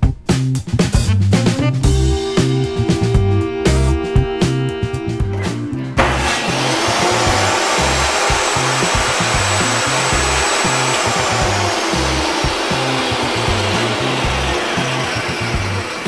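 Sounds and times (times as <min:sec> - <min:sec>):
background music: 0:00.0 - 0:16.0
table saw and dust collector whirring: 0:05.1 - 0:16.0.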